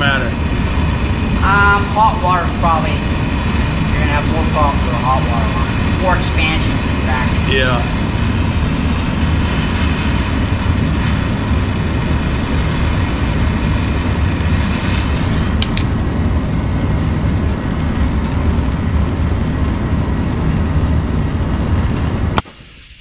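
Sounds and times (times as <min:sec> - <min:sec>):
gas torch flame burning: 0:00.0 - 0:23.0
sharp clicks: 0:15.6 - 0:15.9.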